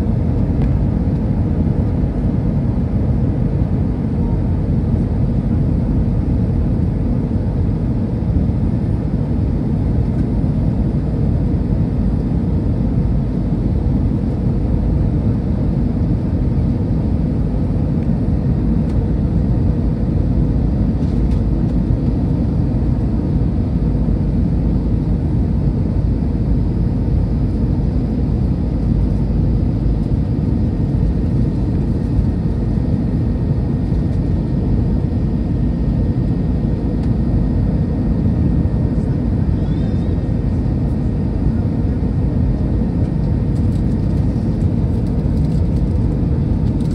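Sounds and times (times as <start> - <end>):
jet engine and airflow roar: 0.0 - 46.9.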